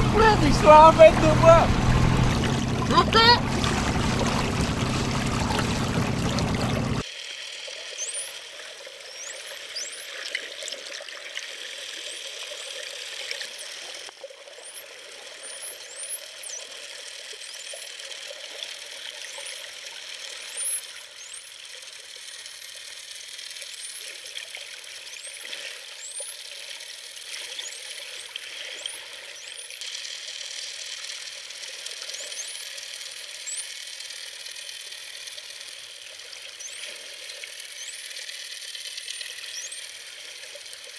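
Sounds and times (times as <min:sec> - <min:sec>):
dolphins whistling underwater: 0:00.0 - 0:07.0, 0:39.1 - 0:40.4.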